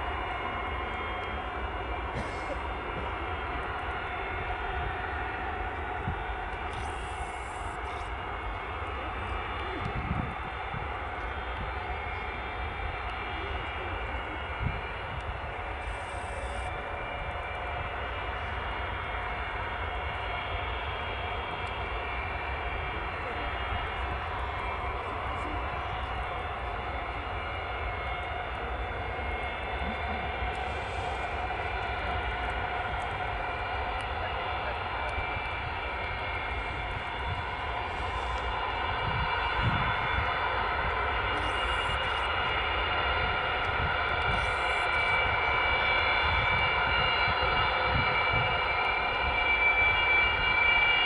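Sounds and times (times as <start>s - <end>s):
jet engines whining at taxi power: 0.0s - 51.0s.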